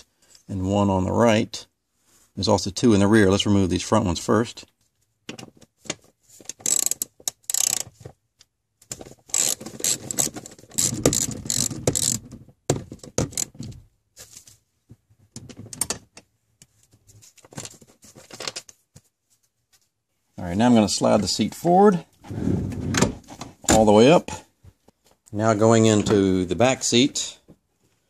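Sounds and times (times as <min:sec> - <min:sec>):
ratchet wrench clicking: 0:06.6 - 0:07.8, 0:09.3 - 0:12.2.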